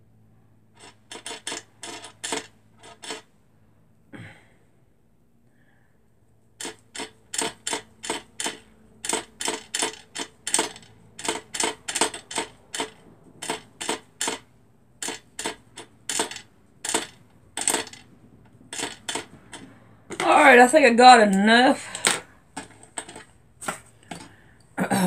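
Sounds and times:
thread winding onto bobbin: 0.8s - 3.3s, 6.6s - 20.5s.

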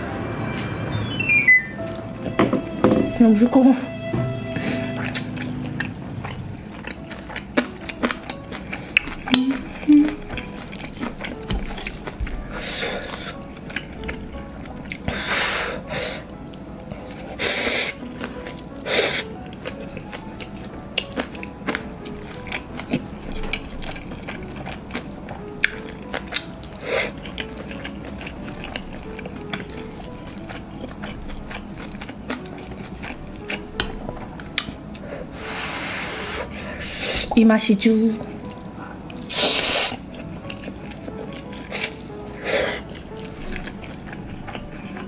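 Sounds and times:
soft background music: 0.0s - 45.0s
person slurping noodles: 39.3s - 40.0s.

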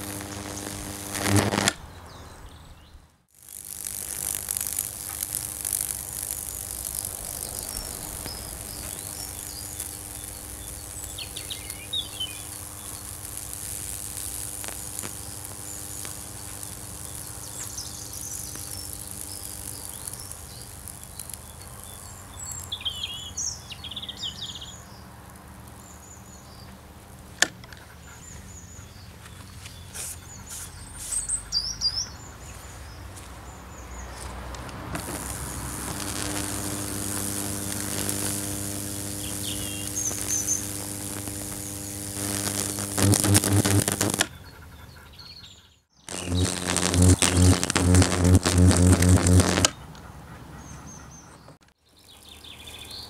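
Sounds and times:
high-voltage discharge sizzling: 0.0s - 1.8s, 3.4s - 21.5s, 34.9s - 44.3s, 46.1s - 49.7s
transformer hum: 0.0s - 1.8s, 3.5s - 19.8s, 34.9s - 44.3s, 46.1s - 49.7s
birds chirping: 6.0s - 13.4s, 35.0s - 51.6s
sharp click: 40.1s - 44.3s.

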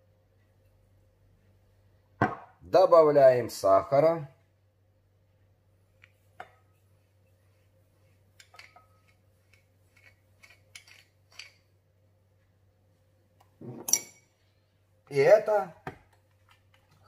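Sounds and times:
knock on glass bowl: 2.2s - 2.5s
spoon scraping sugar in jar: 8.4s - 11.6s.

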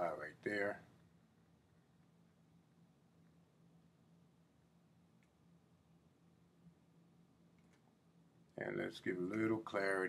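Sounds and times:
steady low hum: 0.0s - 10.0s
faint click: 7.5s - 7.9s, 9.3s - 9.6s.

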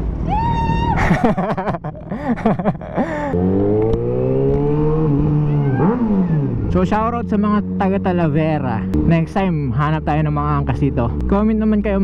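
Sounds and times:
motorcycle engine revving: 3.2s - 12.0s.

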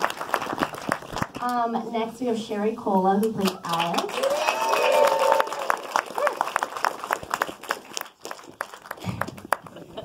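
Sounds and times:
audience applauding: 0.0s - 1.4s, 3.4s - 10.0s
crowd cheering: 4.0s - 8.2s.

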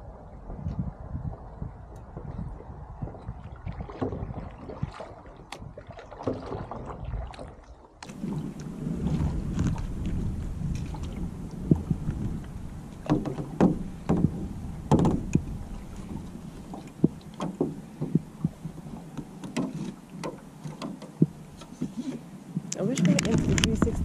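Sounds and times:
low rumble: 0.0s - 5.0s, 8.1s - 19.2s, 23.1s - 24.0s
water slapping against boat: 0.4s - 24.0s.

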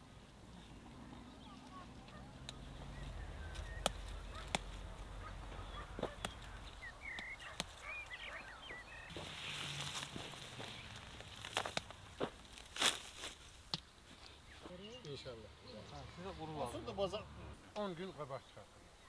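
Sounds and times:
bird chirps: 0.6s - 9.6s
rustling through plants: 1.5s - 15.0s
plant stems snapping: 3.5s - 4.9s, 9.9s - 13.9s.

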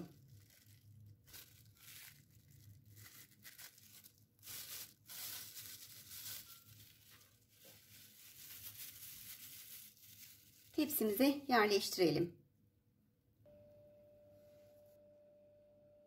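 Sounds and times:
plastic bag crinkling: 0.0s - 11.9s.

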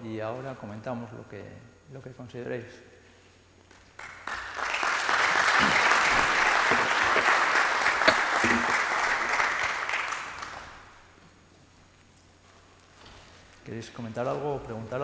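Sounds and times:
audience applauding: 4.0s - 11.1s.

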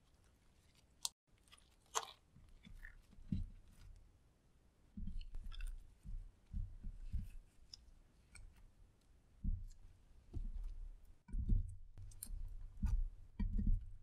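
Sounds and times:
slime squelching: 0.0s - 4.1s.

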